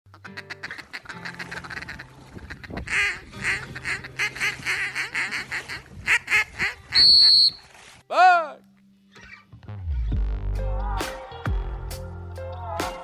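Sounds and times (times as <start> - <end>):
duck chattering: 0.1 - 7.0
duck quacking loudly: 0.1 - 7.4.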